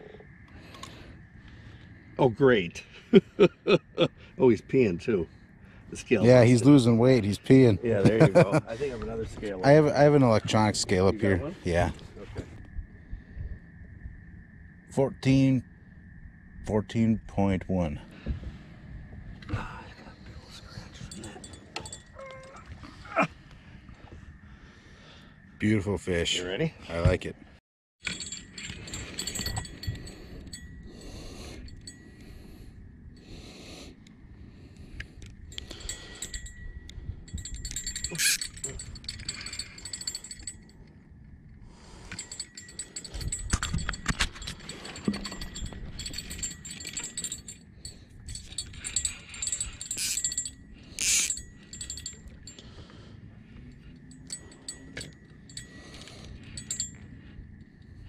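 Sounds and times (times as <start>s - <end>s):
small bell jingling: 20.9s - 22.8s, 28.0s - 32.5s, 35.5s - 40.9s, 42.0s - 53.0s, 53.6s - 58.0s.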